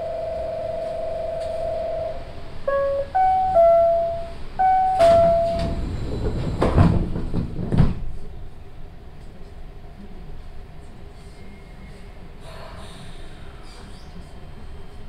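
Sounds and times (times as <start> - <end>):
door chime ringing notes: 0.0 - 5.9
monorail car hum: 0.0 - 15.0
sliding doors knocking: 4.6 - 8.1.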